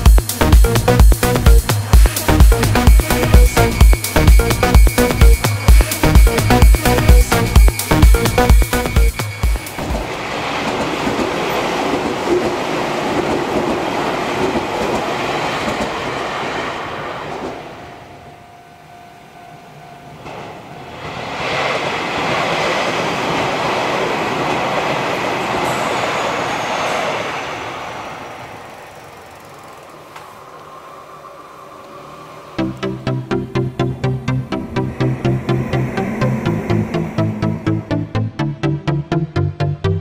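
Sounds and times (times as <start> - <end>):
electric trains passing: 0.0 - 39.4
steady ringing tone: 2.4 - 9.8.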